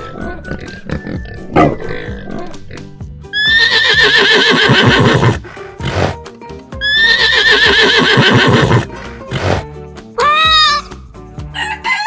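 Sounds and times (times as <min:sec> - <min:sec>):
background music: 0:00.0 - 0:12.0
horse whinnying: 0:03.3 - 0:06.2, 0:06.8 - 0:09.6.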